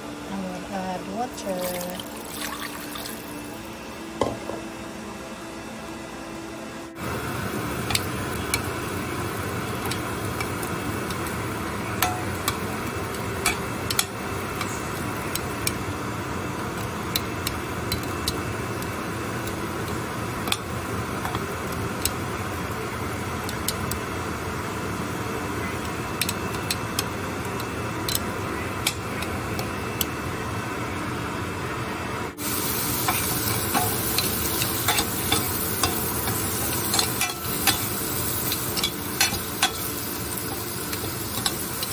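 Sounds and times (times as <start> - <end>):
vegetables sizzling in a frying pan: 7.0 - 31.4, 32.3 - 41.9
metal tongs clicking on pan: 13.4 - 15.8, 26.2 - 28.2, 33.0 - 39.9, 40.9 - 41.9.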